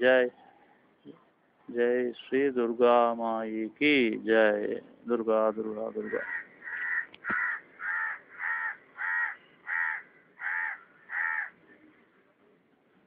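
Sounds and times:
crow cawing: 6.0 - 11.6.

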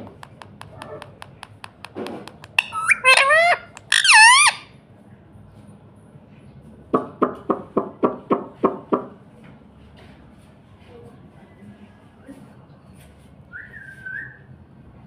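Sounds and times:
parakeet squawking: 2.3 - 4.6
parakeet short notes: 2.5 - 4.6.

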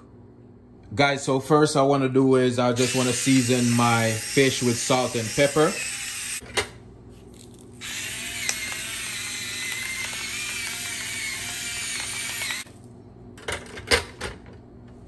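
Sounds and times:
pepper grinder grinding: 7.2 - 12.8.

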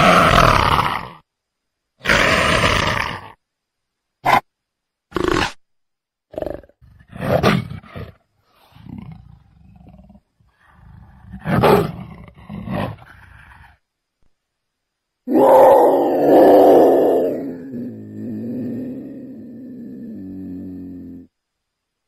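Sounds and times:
leopard roaring and growling: 6.3 - 13.8, 15.3 - 21.3.

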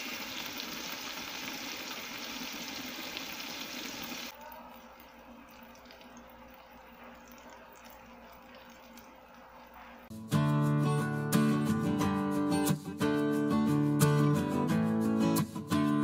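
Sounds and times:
fish sizzling in oil: 0.0 - 4.4.

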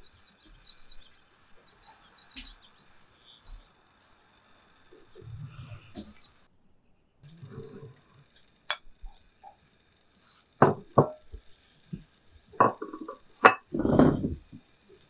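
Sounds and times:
dishes knocking on wooden table: 10.6 - 11.2.

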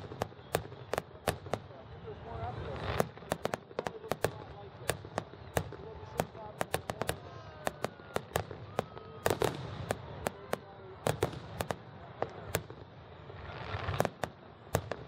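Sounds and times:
fireworks bursting with bangs: 0.0 - 15.0
fireworks crackling: 0.0 - 15.0
firework hiss: 11.1 - 15.0.

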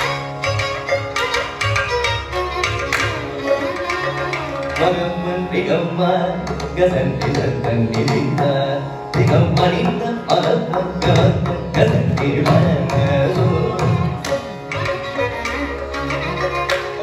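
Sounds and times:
bowed violin: 0.0 - 17.0
hand drums fast stroke pattern: 6.4 - 17.0.

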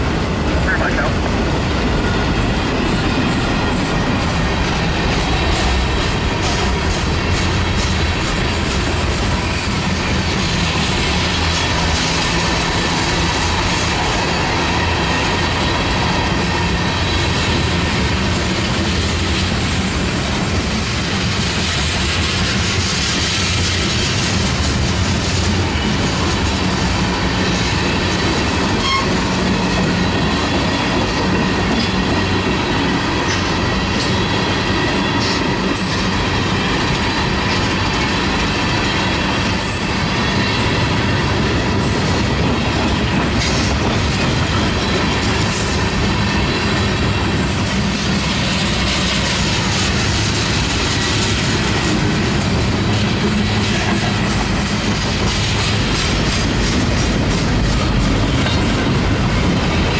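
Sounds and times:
train wheels rumbling on rail: 0.0 - 59.9
wheels clicking over rail joints: 1.2 - 59.9.

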